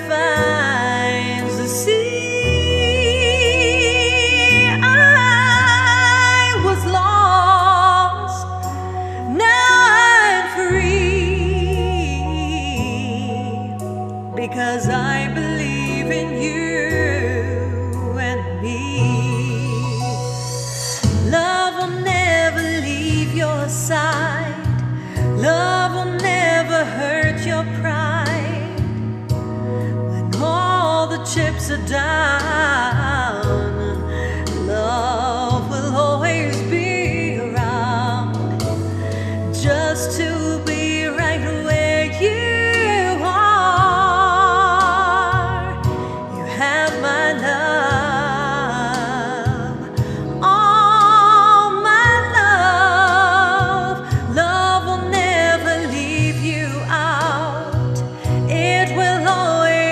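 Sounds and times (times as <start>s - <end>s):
woman singing with vibrato: 0.0s - 24.8s, 25.4s - 29.0s, 30.1s - 59.9s
backing track of sustained chords: 0.0s - 59.9s
held bass notes: 0.0s - 59.9s.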